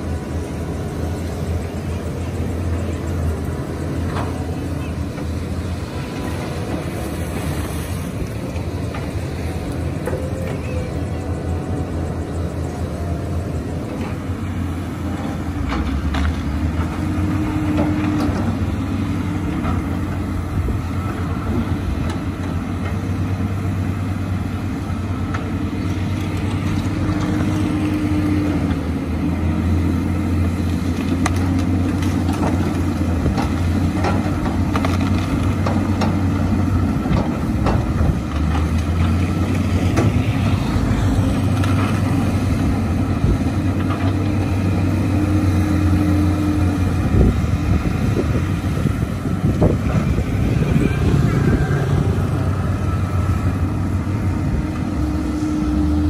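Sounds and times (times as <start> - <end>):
bulldozer working: 0.0 - 56.0
excavator diesel engines running: 0.0 - 56.0
faint knocks of machines: 37.0 - 39.2.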